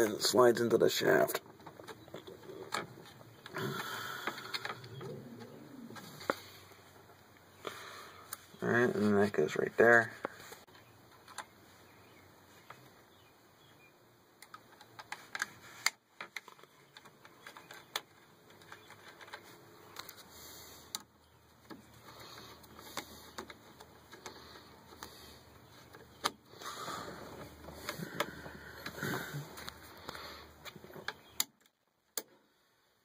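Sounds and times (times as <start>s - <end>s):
small parts clicking and tapping: 1.3s - 5.2s, 14.4s - 20.3s, 20.9s - 26.4s.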